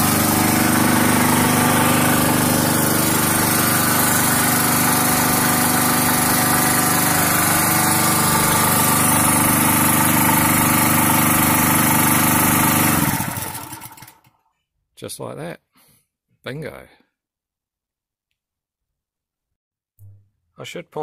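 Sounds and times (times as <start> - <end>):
generator engine running steadily: 0.0 - 14.2.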